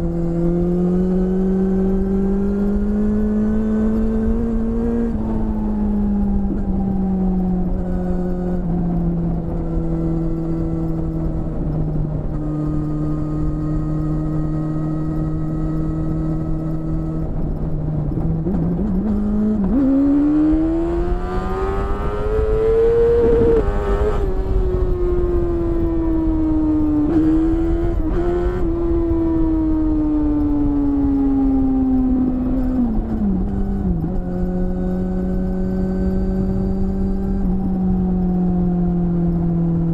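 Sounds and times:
motorcycle engine revving: 0.0 - 39.9
wind rush: 15.6 - 39.9.

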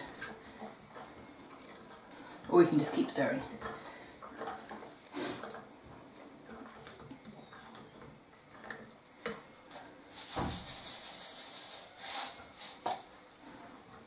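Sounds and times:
hissing rattle of poured lye: 10.1 - 13.2.

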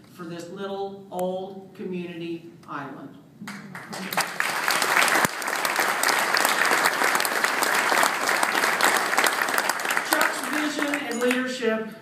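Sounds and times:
audience applauding: 3.5 - 11.4.

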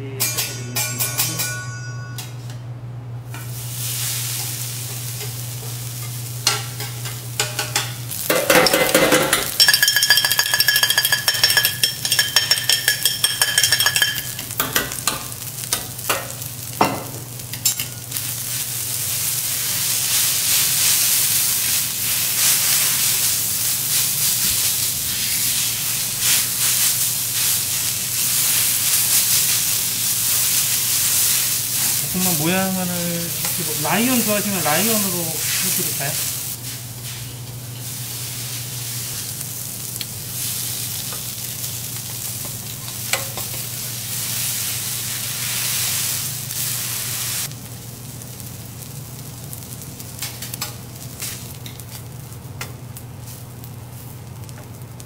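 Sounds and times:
high ringing tone: 0.2 - 2.5
rice sizzling on a griddle: 3.3 - 55.0.

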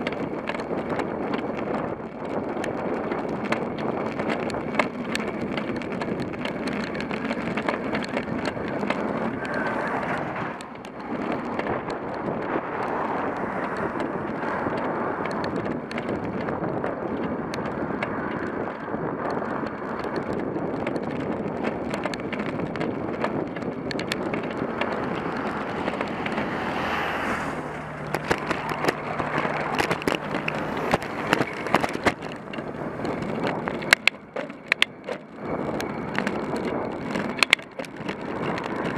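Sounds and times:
bicycle riding noise: 0.0 - 38.9
tow truck passing: 0.0 - 38.9
wind buffeting microphone: 0.0 - 38.9
low engine drone: 3.3 - 38.9
clicks: 20.8 - 38.9.

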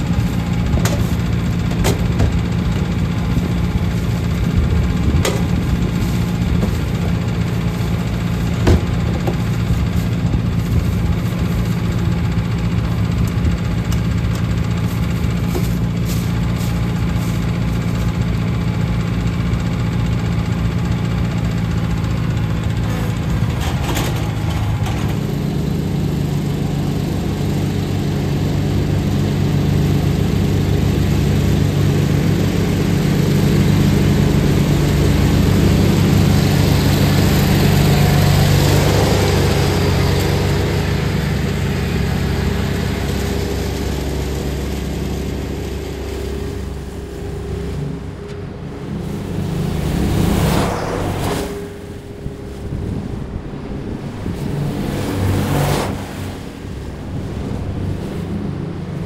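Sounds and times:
leaf vacuum blower rushing: 0.0 - 19.4, 31.4 - 59.0
garden tractor engine running: 0.0 - 59.0.

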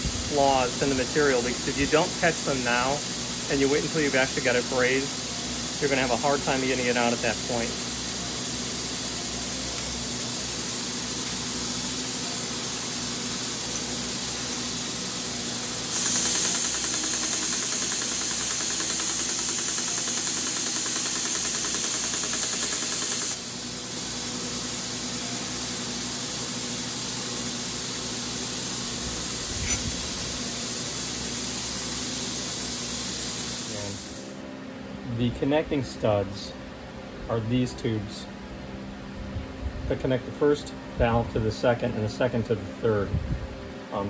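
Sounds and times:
belt sander running: 0.0 - 34.4
metal tube sanded on belt: 10.1 - 23.7, 28.6 - 34.2.

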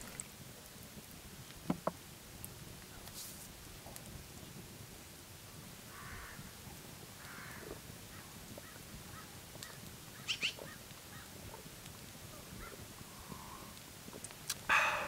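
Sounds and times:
bird calls: 8.6 - 11.3
sharp high sounds: 14.7 - 15.0.

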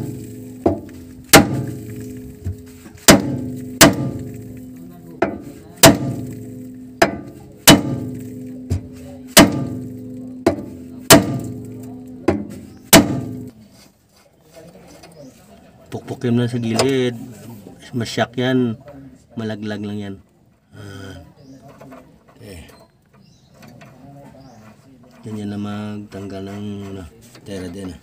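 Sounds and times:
hammer ringing on steel: 0.0 - 13.5.

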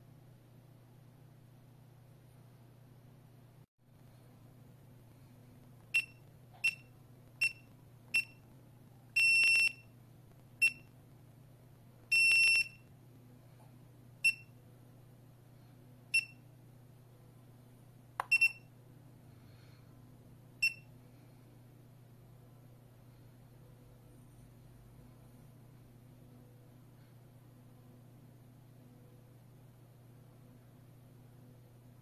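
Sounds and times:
alarm keypad beeping: 9.2 - 9.8, 12.1 - 12.8.

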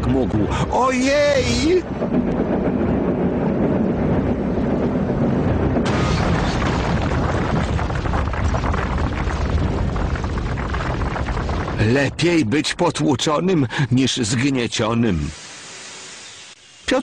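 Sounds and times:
boulder rolling and rumbling: 0.0 - 12.9
crash: 1.6 - 11.9.

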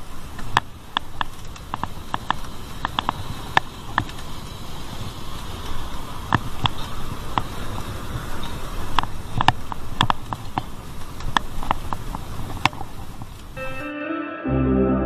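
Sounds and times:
bike clicks and rattles: 0.0 - 13.6
wind and road rush: 0.0 - 13.6.

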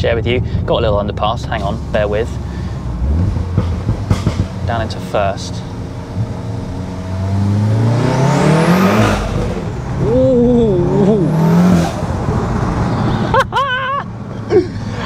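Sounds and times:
car engine accelerating hard: 1.8 - 13.4
person exclaiming ooh: 10.0 - 11.4.

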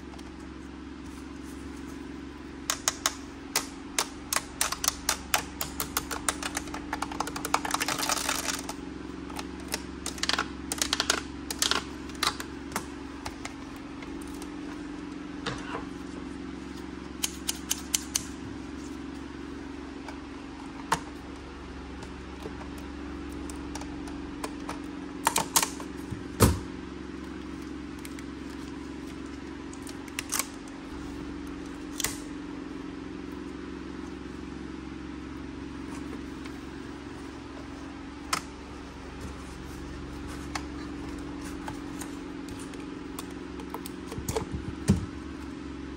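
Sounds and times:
steady low hum: 0.0 - 45.9
packaging strip crackling: 3.6 - 12.5.

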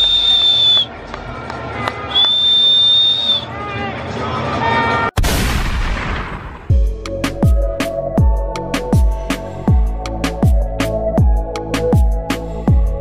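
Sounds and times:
whistle long high blast: 0.0 - 0.9, 2.1 - 3.5
crowd noise: 0.0 - 5.2.

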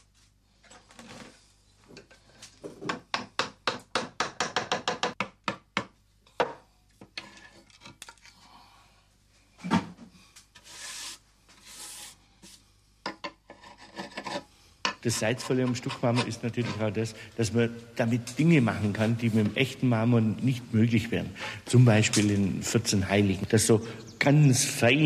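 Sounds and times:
hand tool scraping plaster: 13.5 - 14.5, 15.1 - 17.0
tool rubbing plaster: 15.1 - 16.9.

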